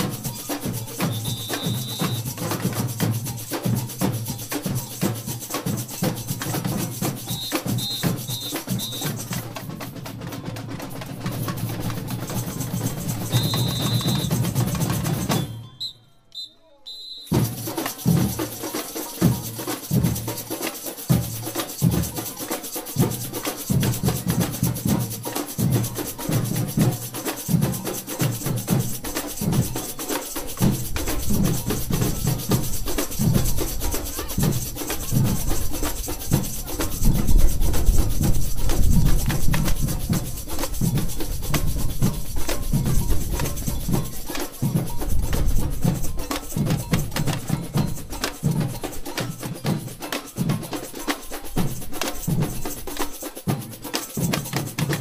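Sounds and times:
shaker shimmer: 0.0s - 10.0s, 10.8s - 15.6s, 17.0s - 55.0s
sharp drum and wood-block strokes: 0.0s - 15.9s, 17.2s - 55.0s.

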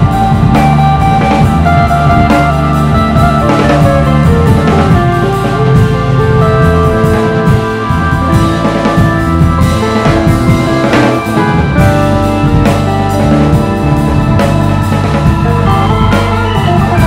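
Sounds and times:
drum kit beat: 0.0s - 17.0s
electric bass: 0.0s - 17.0s
electric guitar: 0.0s - 17.0s.

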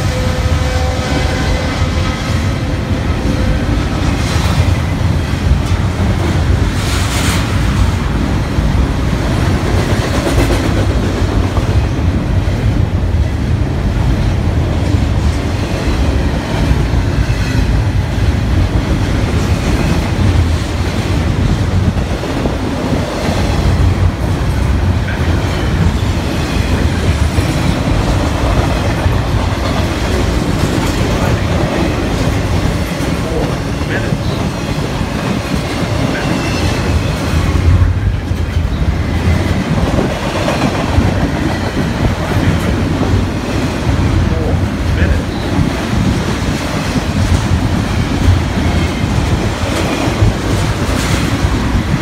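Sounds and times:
freight train wheels clattering: 0.0s - 52.0s.

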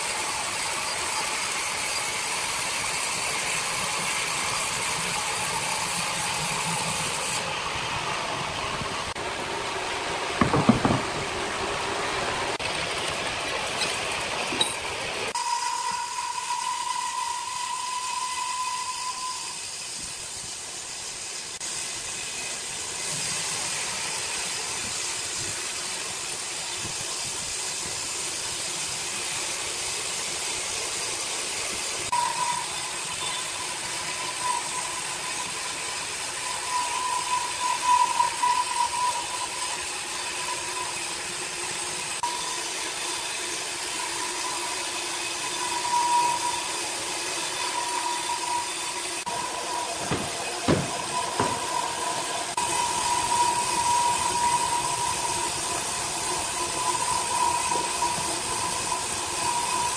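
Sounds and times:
band saw cutting log: 0.0s - 7.6s, 32.1s - 59.9s.

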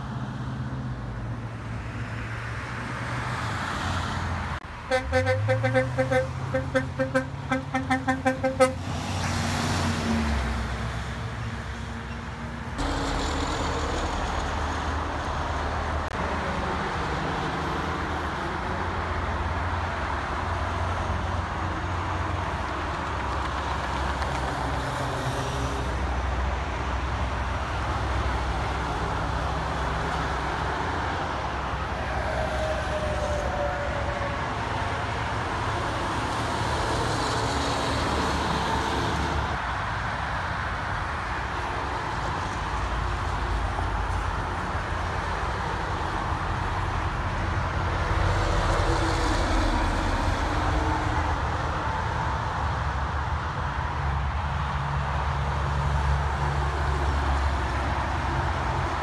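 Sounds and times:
diesel trucks passing: 0.0s - 59.0s
truck horn blasts: 4.8s - 8.9s.

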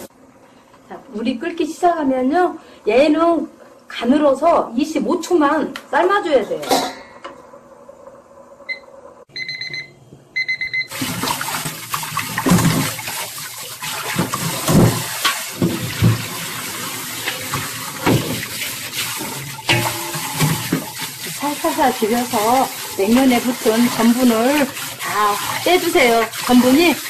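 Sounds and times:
kitchen timer beeping: 8.7s - 11.0s
tap running into metal colander: 10.9s - 27.0s
hands rubbing noodles under water: 20.3s - 27.0s.

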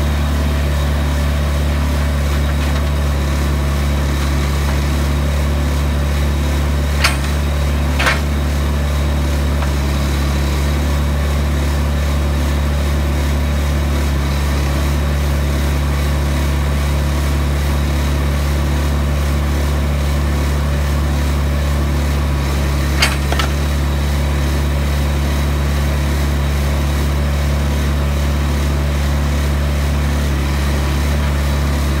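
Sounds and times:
diesel engine humming: 0.0s - 16.2s.

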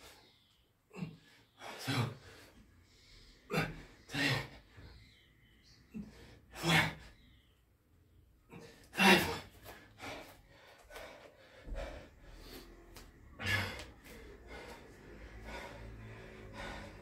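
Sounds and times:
man panting hard: 0.9s - 5.2s, 8.4s - 17.0s.

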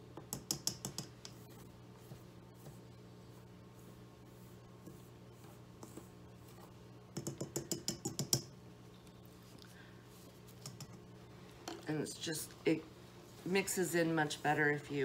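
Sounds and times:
wire whisk stirring powder in bowl: 0.3s - 8.5s, 10.1s - 11.1s.

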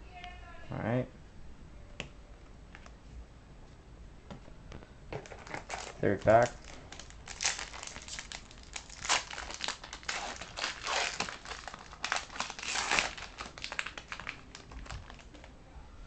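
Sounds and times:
foil wrapper tearing and crinkling: 5.2s - 15.5s.

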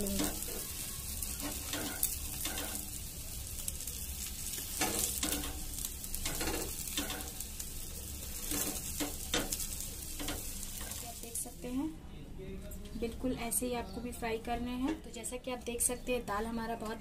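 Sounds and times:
omelette sizzling on griddle: 0.0s - 11.8s.

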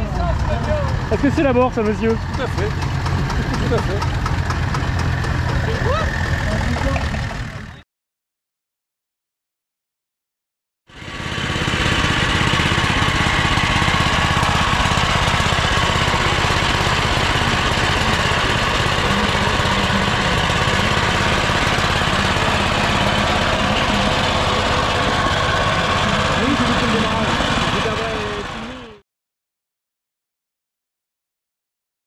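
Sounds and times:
small tractor engine running: 0.0s - 7.8s, 10.9s - 29.0s.

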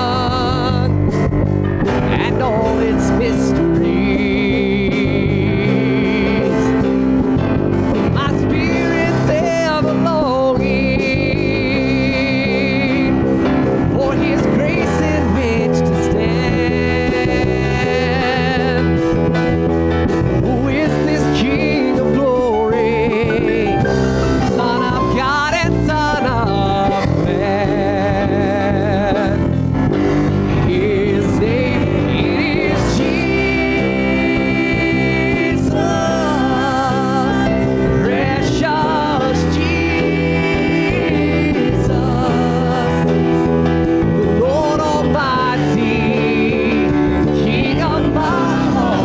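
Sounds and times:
worship band playing: 0.0s - 49.0s
singers holding long notes: 30.4s - 49.0s.

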